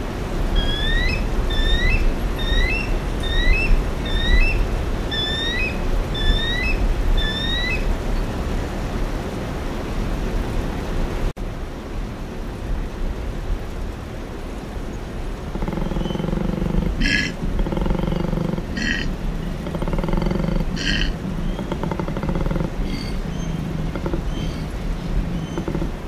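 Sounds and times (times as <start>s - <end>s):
koala bellowing grunts: 15.6s - 24.5s.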